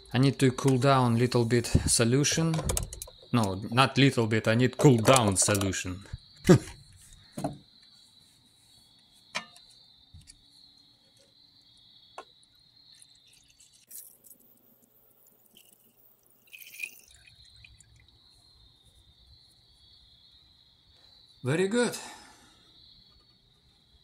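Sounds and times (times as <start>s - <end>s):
liquid trickling into bucket: 12.9s - 18.2s.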